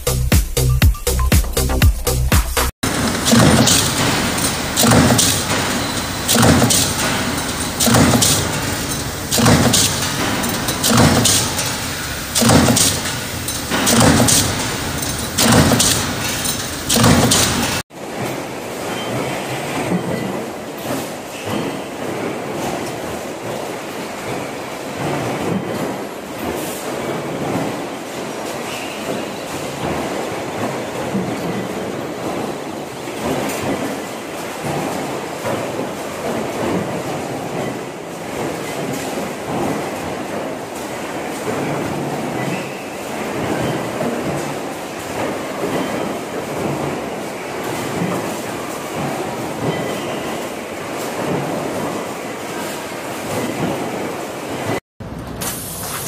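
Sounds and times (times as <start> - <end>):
press running noise: 2.6 - 17.8
stamping press clanking impacts: 2.6 - 54.8.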